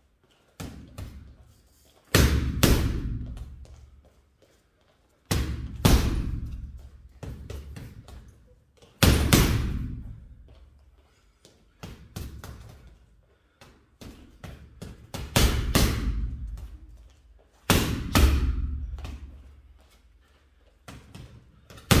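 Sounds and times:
boxing gloves punching heavy bag: 0:02.1 - 0:03.7, 0:05.3 - 0:08.3, 0:09.0 - 0:10.3, 0:14.0 - 0:16.9, 0:17.6 - 0:19.3, 0:21.0 - 0:22.0.

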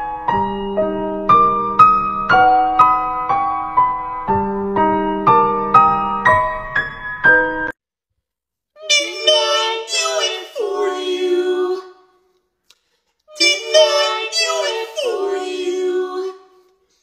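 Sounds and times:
high-pitched singing voice with music: 0:08.8 - 0:12.1, 0:13.3 - 0:16.7.

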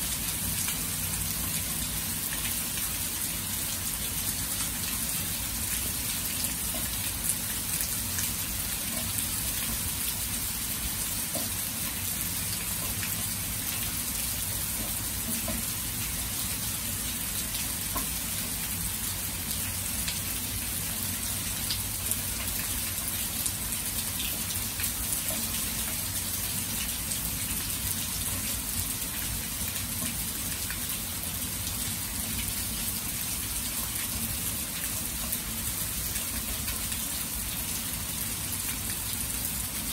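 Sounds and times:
heavy rain on water and grass: 0:00.0 - 0:39.9.

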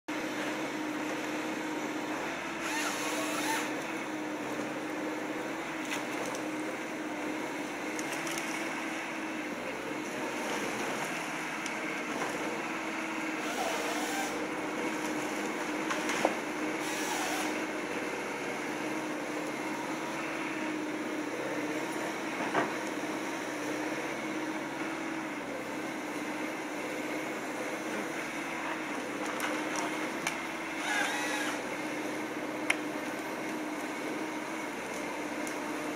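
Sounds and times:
excavator diesel engine running: 0:00.1 - 0:35.9.

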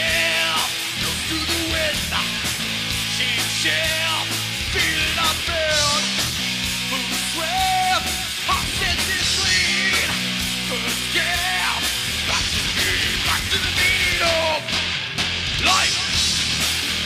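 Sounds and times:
live rock band playing: 0:00.0 - 0:17.0
shouted vocals: 0:15.6 - 0:16.2.

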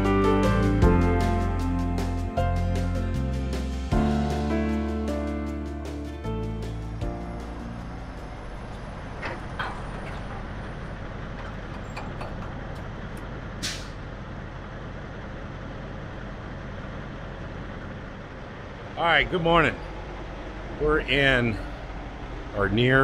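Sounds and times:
diesel truck engine idling: 0:00.0 - 0:23.0
air brake hiss: 0:13.6 - 0:14.0.

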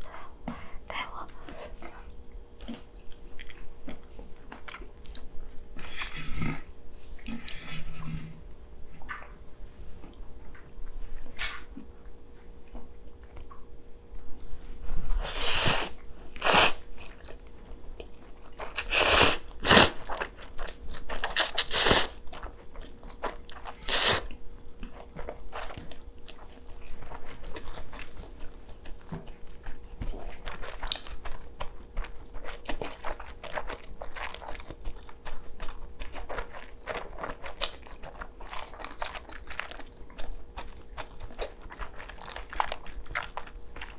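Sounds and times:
chewing with wet mouth clicks: 0:01.2 - 0:05.4, 0:11.6 - 0:13.7, 0:16.9 - 0:18.9, 0:20.0 - 0:43.9.

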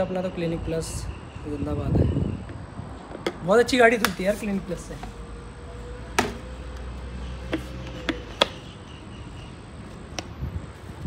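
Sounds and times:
plastic clicks and taps: 0:04.0 - 0:04.2, 0:07.5 - 0:08.6.

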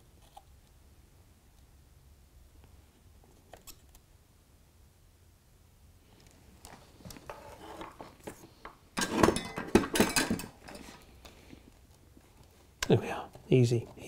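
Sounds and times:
rustling and clattering: 0:06.3 - 0:11.6.

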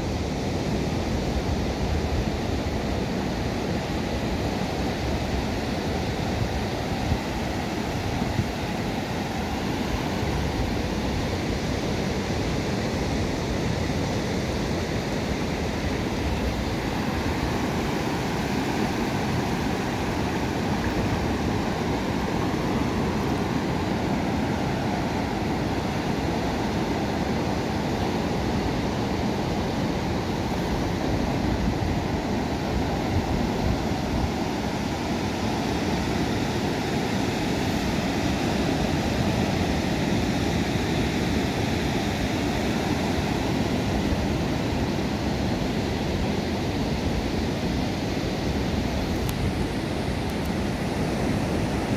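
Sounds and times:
ocean surf waves breaking: 0:00.0 - 0:51.9.

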